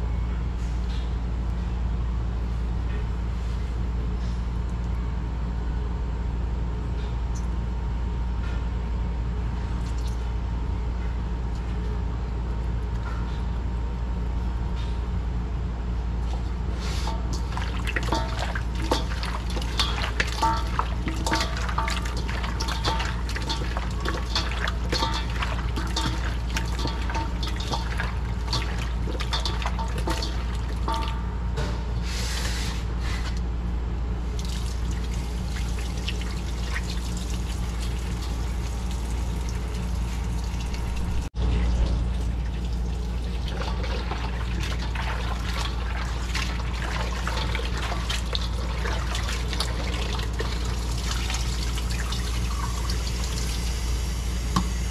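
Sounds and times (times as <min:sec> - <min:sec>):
steady low hum: 0:00.0 - 0:54.9
tap water splashing into bowl: 0:17.1 - 0:31.2.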